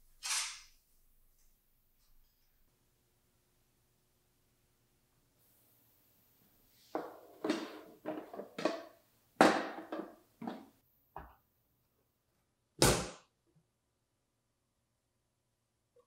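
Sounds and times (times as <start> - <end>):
metal pan knocks and scrapes: 6.9 - 10.7.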